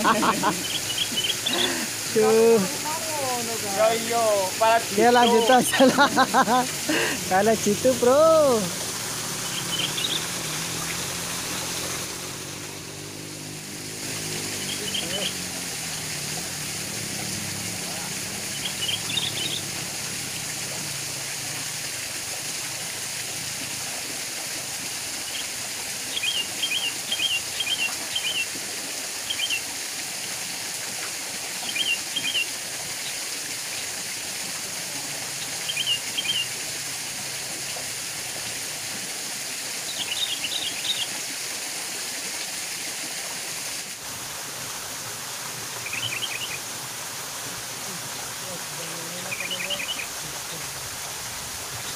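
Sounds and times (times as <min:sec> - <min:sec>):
waterfall and stream rushing: 0:00.0 - 0:51.9
bird chirping: 0:00.2 - 0:01.7, 0:09.4 - 0:11.8, 0:14.6 - 0:15.4, 0:18.5 - 0:19.7, 0:35.7 - 0:36.5, 0:45.8 - 0:46.6.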